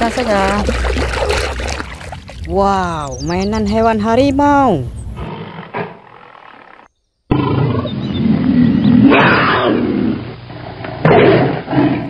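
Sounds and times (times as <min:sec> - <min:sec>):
tiger growling and roaring: 0:05.2 - 0:12.0.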